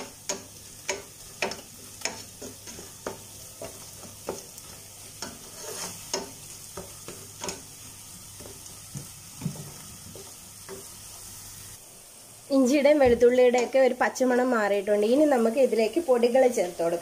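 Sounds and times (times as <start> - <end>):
wooden spatula scraping a pan: 0.0 - 11.3
onions sizzling in oil: 0.0 - 17.0.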